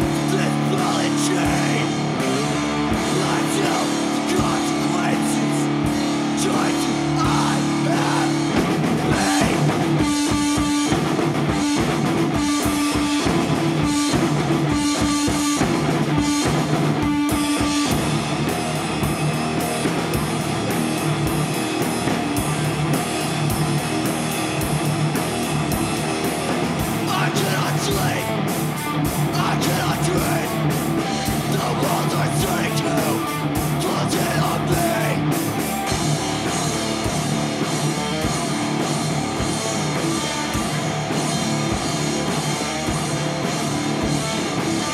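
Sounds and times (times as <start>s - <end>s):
distorted electric guitar: 0.0s - 44.9s
drum kit: 0.0s - 44.9s.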